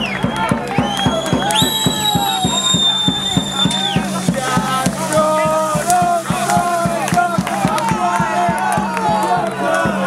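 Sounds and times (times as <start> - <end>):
fast drum beat: 0.0 - 10.0
many voices chanting: 3.6 - 10.0.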